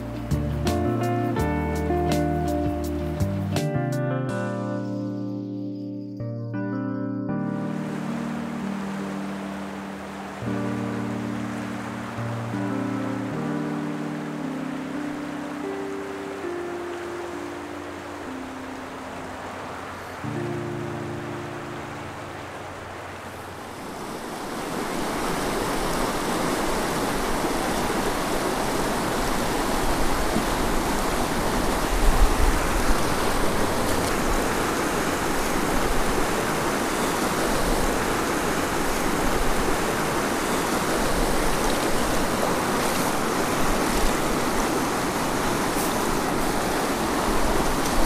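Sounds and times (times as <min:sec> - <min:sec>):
river rushing over rocks: 0:07.6 - 0:48.0.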